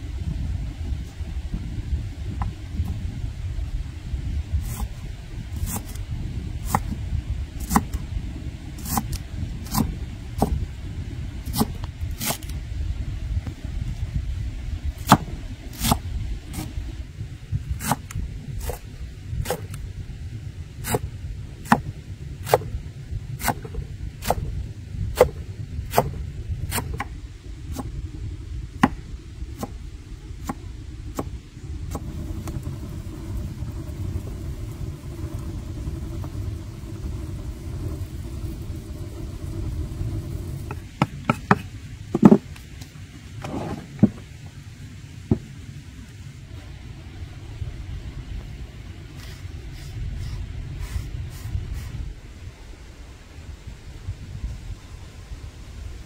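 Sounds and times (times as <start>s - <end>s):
steady low rumble: 0.0s - 56.0s.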